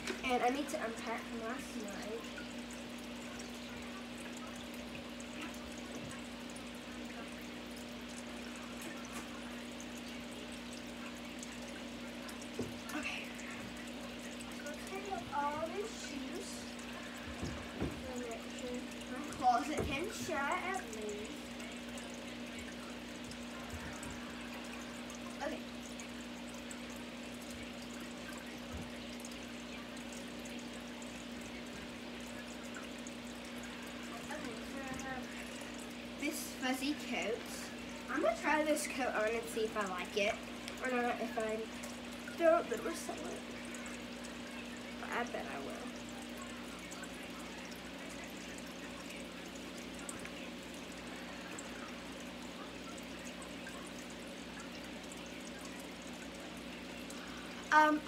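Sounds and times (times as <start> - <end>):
constant low hum: 0.0 - 58.0.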